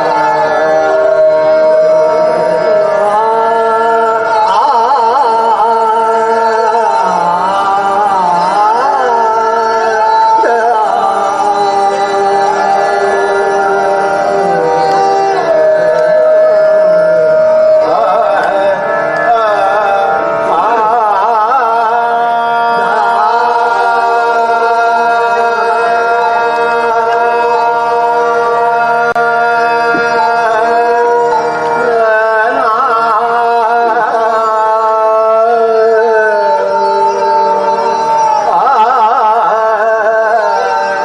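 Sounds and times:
harmonium sustained tones: 0.0s - 41.0s
men singing ornamented runs: 0.0s - 41.0s.

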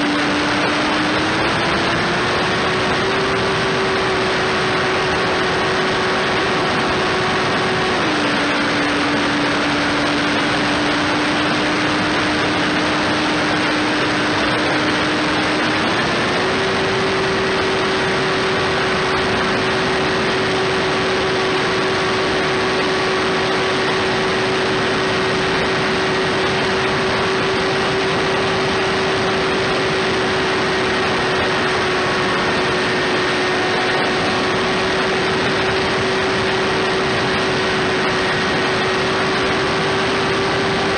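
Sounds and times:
electric motor and propeller whining: 0.0s - 40.9s
wind noise: 0.0s - 40.9s.

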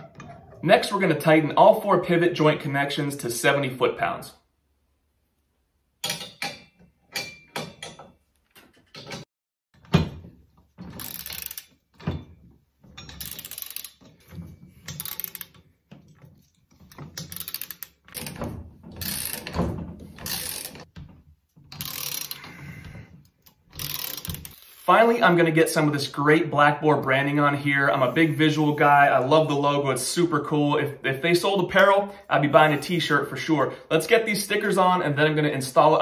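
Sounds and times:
torque wrench ratchet clicking: 11.0s - 11.8s, 13.1s - 14.1s, 14.9s - 15.6s, 17.2s - 18.4s, 19.0s - 19.5s, 20.2s - 20.9s, 21.8s - 22.5s, 23.4s - 24.9s.

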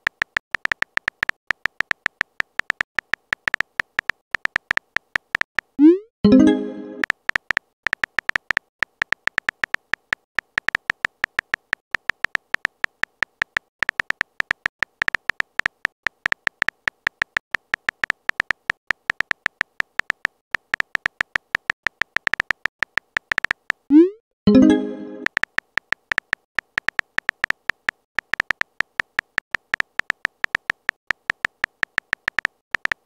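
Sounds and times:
phone keyboard typing clicks: 0.0s - 6.0s, 7.0s - 23.9s, 24.5s - 33.0s
rising swoop and chime: 24.5s - 25.2s.

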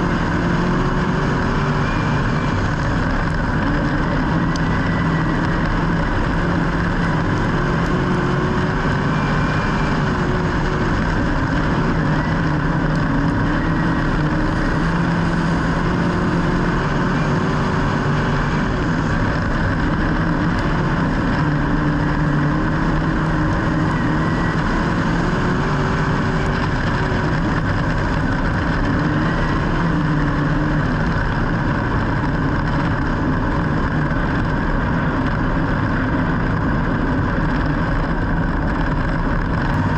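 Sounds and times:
engine running loudly: 0.0s - 39.9s.

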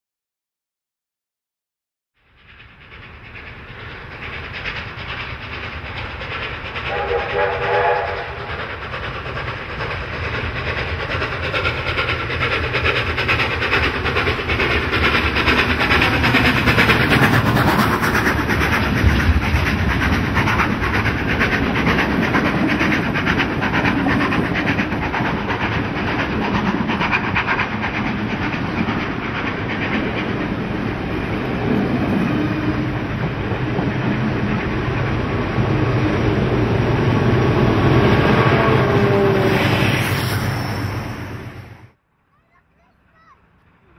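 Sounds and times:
steam locomotive passing: 2.2s - 43.9s
wheels clickety-clack over rail joints: 2.2s - 43.9s.

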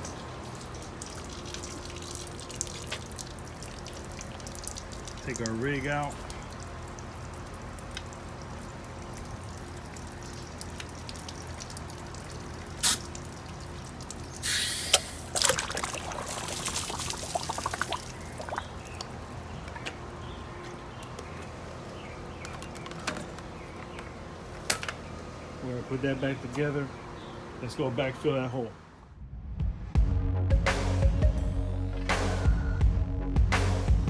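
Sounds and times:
water pouring and trickling: 0.0s - 20.1s.

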